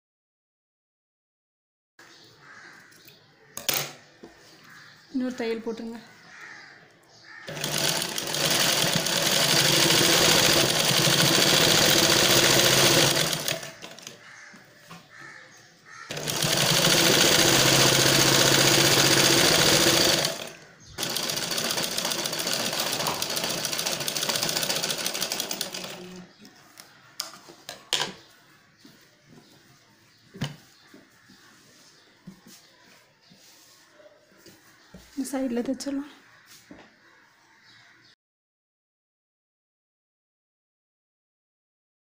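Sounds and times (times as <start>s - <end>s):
sewing machine stitching: 7.5s - 14.2s, 16.1s - 26.2s.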